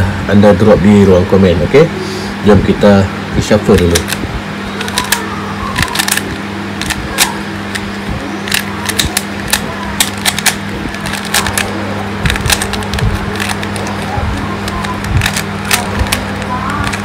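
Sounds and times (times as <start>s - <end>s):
steady low hum: 0.0s - 17.0s
puzzle cube twisting clicks: 3.7s - 4.2s, 4.8s - 17.0s.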